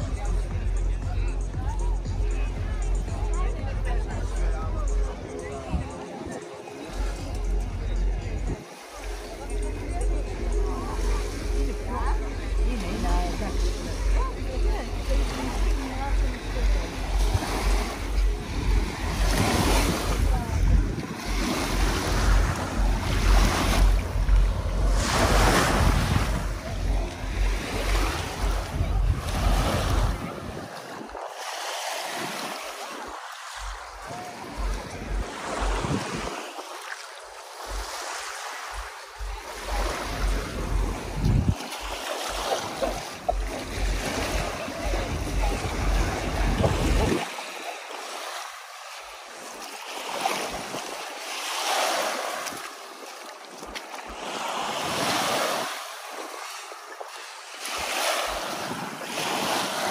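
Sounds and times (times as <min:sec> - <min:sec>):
waves on rocky shore: 0:00.0 - 0:59.9
wind rumble on microphone: 0:09.5 - 0:31.4, 0:32.3 - 0:36.5, 0:38.7 - 0:47.3.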